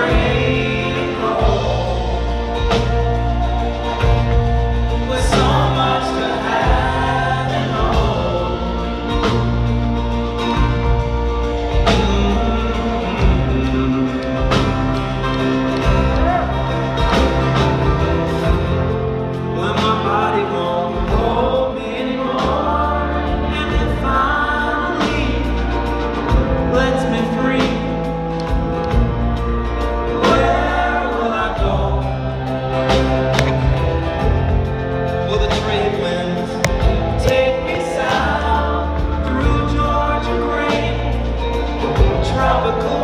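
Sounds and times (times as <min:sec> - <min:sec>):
acoustic guitar: 0:00.0 - 0:43.0
wordless vocal harmonies: 0:00.0 - 0:43.0.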